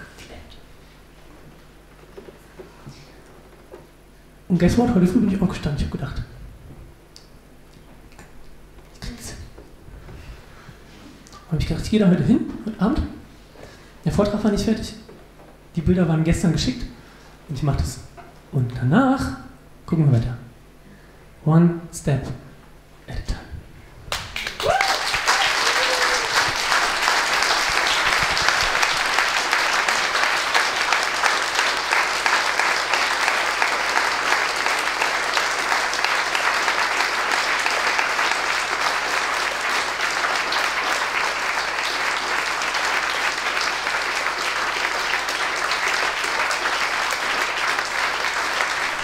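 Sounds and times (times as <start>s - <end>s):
audience applauding: 24.1s - 49.0s.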